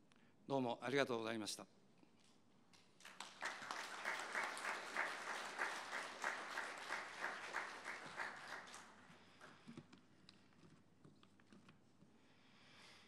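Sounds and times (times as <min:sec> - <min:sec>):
audience applauding: 0:03.0 - 0:09.1.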